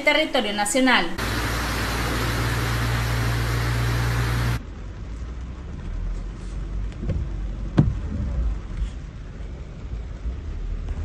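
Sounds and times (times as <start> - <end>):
low steady hum: 1.0 - 5.6
heavy rain and floodwater rushing: 1.2 - 4.6.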